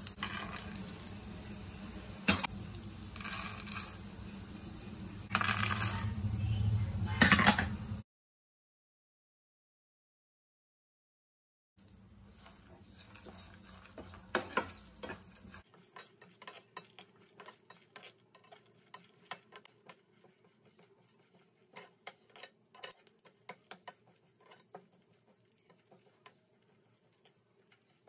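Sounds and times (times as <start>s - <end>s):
spatula ticking and scraping pan: 0.0s - 4.1s, 11.8s - 28.0s.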